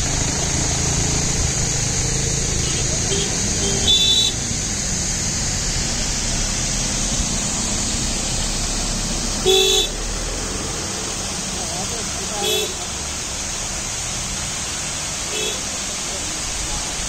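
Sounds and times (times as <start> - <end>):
vehicle horn toots: 2.6 - 4.4, 9.4 - 10.0.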